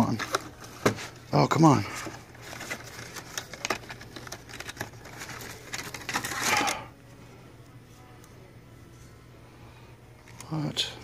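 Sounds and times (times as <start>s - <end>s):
packaging rustle: 0.0s - 1.3s, 1.9s - 6.9s.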